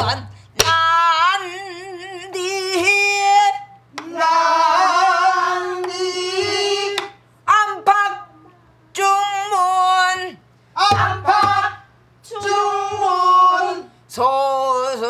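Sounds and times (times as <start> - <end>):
woman singing with vibrato: 0.0 - 15.0
class singing: 4.0 - 7.2, 10.8 - 13.9.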